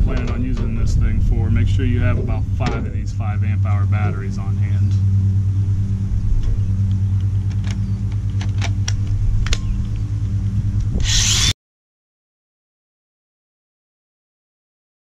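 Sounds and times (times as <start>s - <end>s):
low hum: 0.0s - 11.6s.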